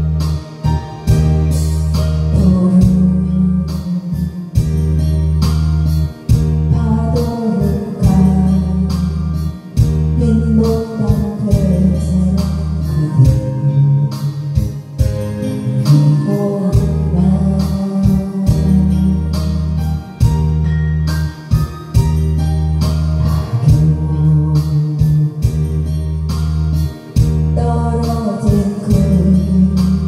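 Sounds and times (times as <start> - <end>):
backing track with bass line: 0.0 - 30.0
woman singing into microphone: 1.5 - 4.8, 6.6 - 14.8, 15.4 - 19.9, 23.4 - 26.0, 27.5 - 30.0.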